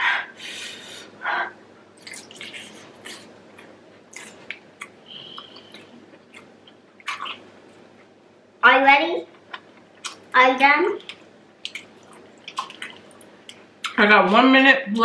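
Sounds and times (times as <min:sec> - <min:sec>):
puff of breath: 0:00.0 - 0:01.6
wet chewing and lip smacking: 0:02.0 - 0:08.1, 0:09.4 - 0:10.4, 0:11.0 - 0:14.0.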